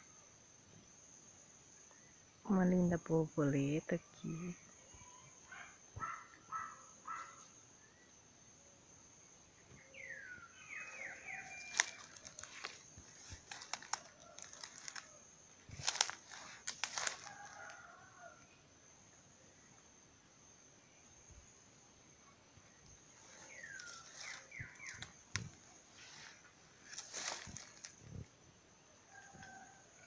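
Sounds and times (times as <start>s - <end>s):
high insect drone: 0.0s - 30.0s
footsteps in undergrowth: 11.1s - 17.8s, 23.4s - 28.0s
twigs snapping: 11.6s - 15.1s, 15.7s - 17.7s, 23.6s - 25.6s, 26.9s - 28.0s.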